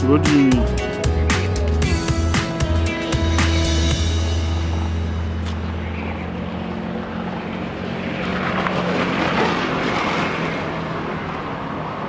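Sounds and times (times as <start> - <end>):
vehicle passing on road: 3.1 - 12.0
steady low hum: 3.2 - 8.6.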